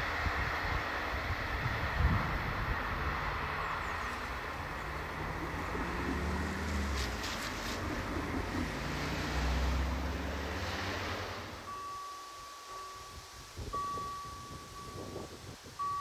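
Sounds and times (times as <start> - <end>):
wind buffeting microphone: 0.0 - 10.2, 13.2 - 16.0
diesel railcar engine drone: 0.0 - 16.0
rail clicks: 3.0 - 9.7.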